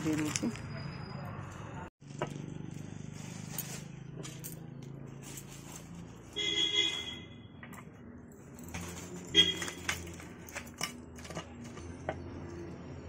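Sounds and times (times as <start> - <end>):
trinkets clinking on glass counter: 0.0 - 0.8, 8.2 - 12.0.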